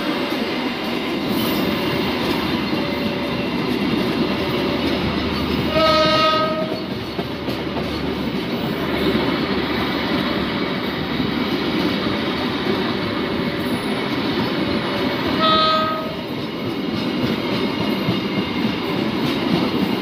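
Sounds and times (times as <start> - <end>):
train wheels rumbling on rails: 0.0 - 20.0
train horn blast: 5.7 - 6.9, 15.4 - 16.2.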